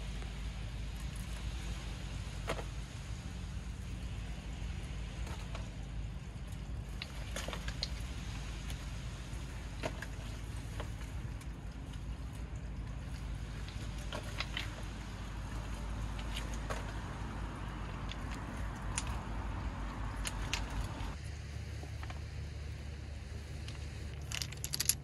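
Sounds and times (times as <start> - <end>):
small hard objects clinking: 23.6 - 25.0.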